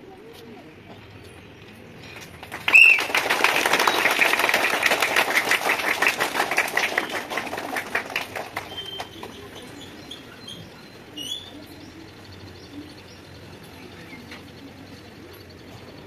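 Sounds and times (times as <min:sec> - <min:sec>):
crowd clapping: 0:02.2 - 0:09.6.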